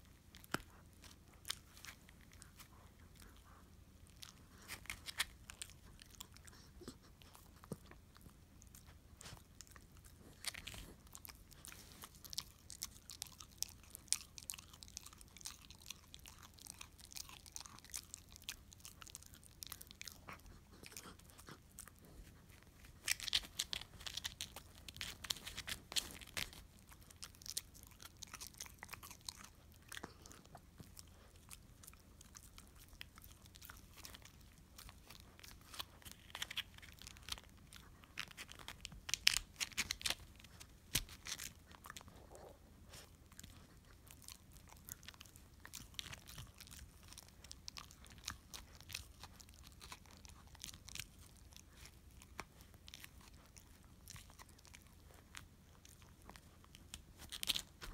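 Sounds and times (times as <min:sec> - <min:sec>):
dog gnawing a bone: 0:00.0 - 0:57.9.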